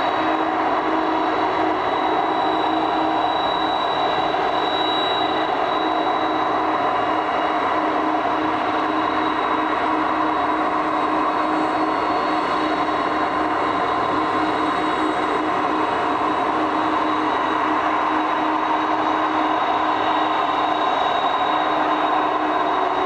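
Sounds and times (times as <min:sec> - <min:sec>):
constant rushing noise: 0:00.0 - 0:23.0
jet engine whine: 0:00.0 - 0:23.0.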